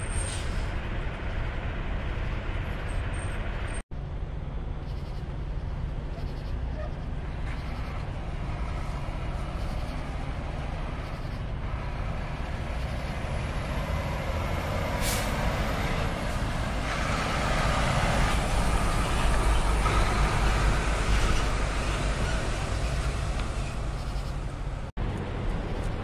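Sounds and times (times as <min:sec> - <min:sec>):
truck engine rumble passing: 0:00.0 - 0:26.0
air brake hiss: 0:00.1 - 0:00.7, 0:14.9 - 0:15.4.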